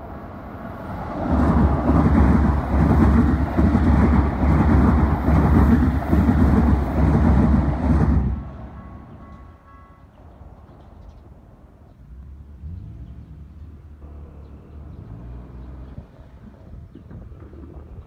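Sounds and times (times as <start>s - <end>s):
train wheels clattering on rails: 1.0s - 11.3s.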